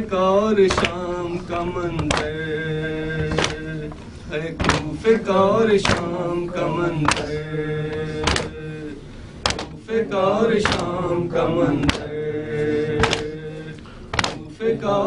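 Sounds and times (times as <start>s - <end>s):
man chanting into a microphone: 0.0s - 9.0s
men beating their chests: 0.6s - 2.5s, 3.1s - 8.8s, 9.4s - 9.9s, 10.5s - 14.6s.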